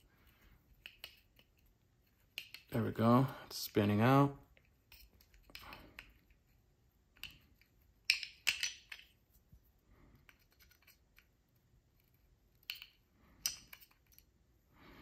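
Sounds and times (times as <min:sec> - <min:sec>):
small metal clicks and scrapes: 0:10.2 - 0:11.3.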